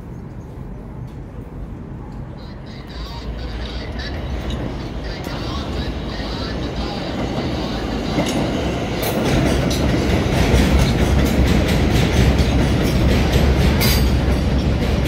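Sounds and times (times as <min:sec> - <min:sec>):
subway train rumbling: 0:00.0 - 0:15.0
wheel clacks over rail joints: 0:06.8 - 0:15.0.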